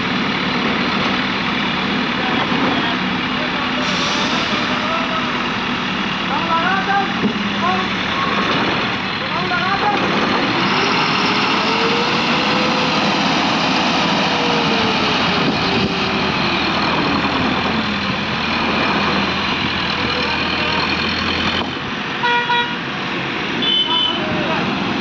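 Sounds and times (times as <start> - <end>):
truck diesel engine under load: 0.0 - 25.0
truck horn toot: 22.2 - 22.8, 23.6 - 24.3.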